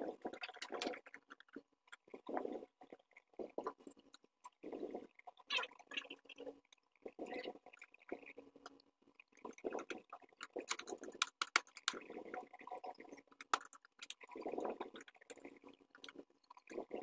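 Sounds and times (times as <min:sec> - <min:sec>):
plastic clicks and taps: 0:10.4 - 0:12.0.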